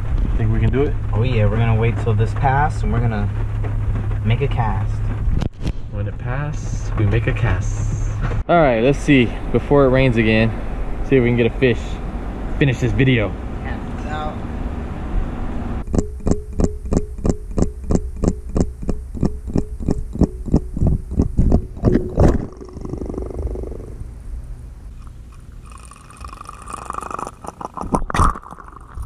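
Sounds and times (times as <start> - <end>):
sharp knocks: 15.9 - 22.5
toy motor ticking underwater: 15.9 - 23.8, 25.0 - 29.0.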